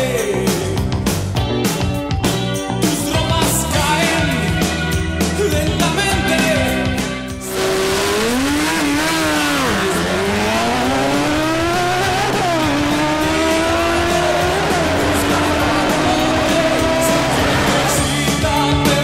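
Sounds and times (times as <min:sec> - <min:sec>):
motorcycle engines revving hard: 0:07.4 - 0:19.0.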